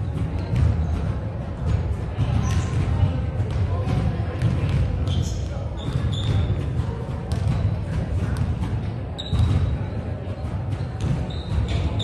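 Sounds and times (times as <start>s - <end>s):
basketballs bouncing on wooden floor: 0.0s - 12.0s
low rumble of large hall: 0.0s - 12.0s
sneaker squeaks: 2.2s - 3.0s, 5.0s - 7.8s, 9.2s - 12.0s.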